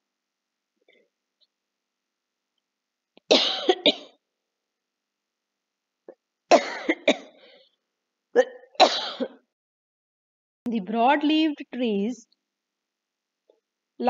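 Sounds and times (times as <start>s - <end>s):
woman coughing: 3.3s - 4.2s, 6.5s - 7.4s, 8.4s - 9.4s.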